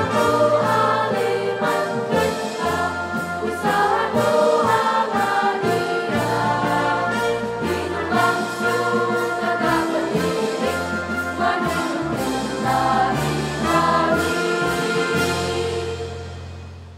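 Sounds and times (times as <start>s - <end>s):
girls' choir singing a march: 0.0s - 16.4s
electronic keyboard accompaniment: 0.0s - 16.9s.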